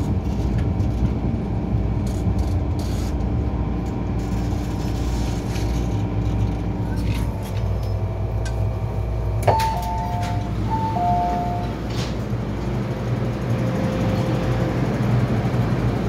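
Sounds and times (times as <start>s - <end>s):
low hum of stopped train: 0.0s - 16.0s
train door click: 9.4s - 12.8s
falling two-note door chime: 9.5s - 11.8s.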